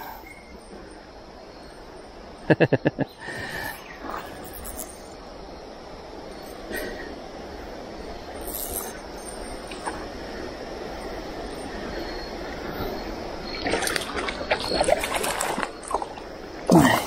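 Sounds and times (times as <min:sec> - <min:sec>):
stream water running: 0:01.3 - 0:17.0
splashes and knocks: 0:13.6 - 0:16.8.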